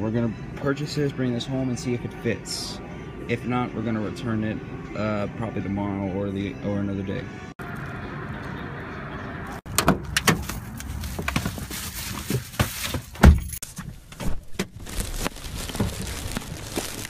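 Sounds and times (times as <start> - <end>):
car door shutting: 9.7 - 10.6
plastic bag rustling: 10.4 - 13.7, 14.4 - 17.0.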